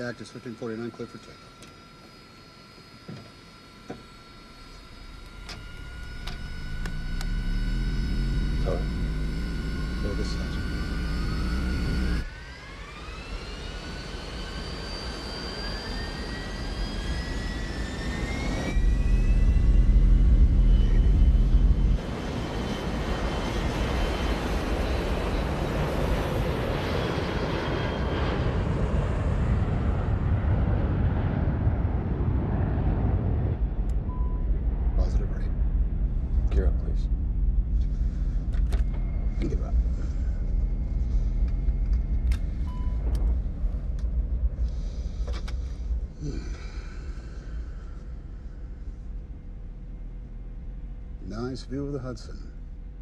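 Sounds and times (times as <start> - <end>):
jet engines spooling up: 0.0 - 52.8
jet takeoff roar: 0.0 - 53.0
loud low rumble: 18.7 - 22.2, 29.0 - 52.0.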